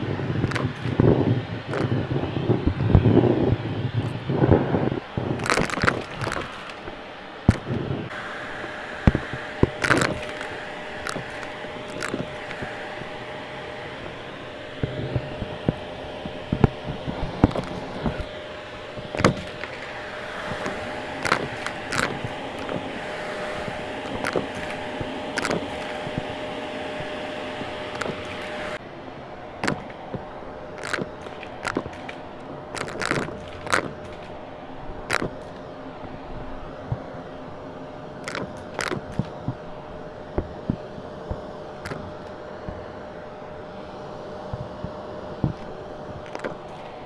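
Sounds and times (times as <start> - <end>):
debris crackling through vacuum: 0.0 - 28.8
vacuum cleaner running: 0.0 - 47.0.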